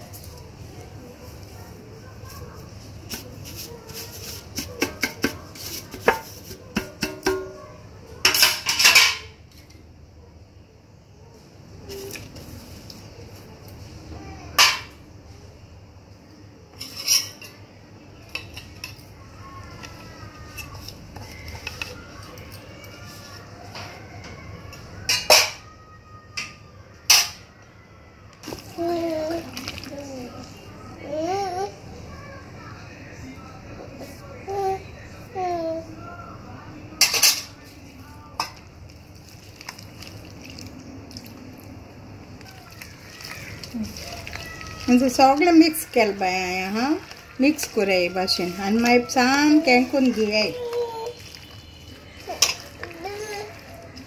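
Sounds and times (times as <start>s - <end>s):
steel bowls and utensils clattering: 3.1s - 7.6s, 8.2s - 9.8s, 16.7s - 17.6s, 18.3s - 19.1s, 25.1s - 25.6s, 37.0s - 37.6s, 42.5s - 54.0s
hand mixing wet marinade: 18.6s - 23.6s, 28.4s - 30.8s, 37.8s - 54.0s
spoon clinking against steel bowl: 51.2s - 52.9s.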